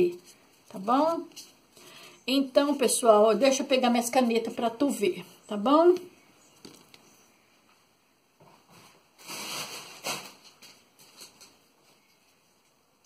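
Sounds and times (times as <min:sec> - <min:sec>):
soft rustling: 0:00.0 - 0:02.0.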